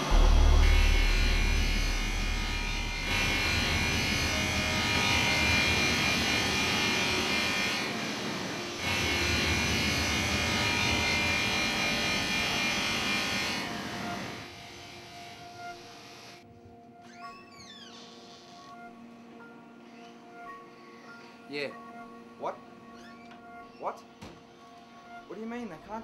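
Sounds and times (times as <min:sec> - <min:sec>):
power tool whirring and grinding: 0:00.0 - 0:16.4.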